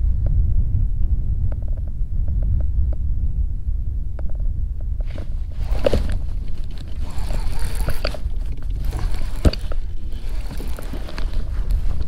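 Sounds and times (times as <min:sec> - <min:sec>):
wind buffeting microphone: 0:00.0 - 0:12.0
fishing rod and reel handling: 0:05.1 - 0:12.0
jacket rustling: 0:05.1 - 0:12.0.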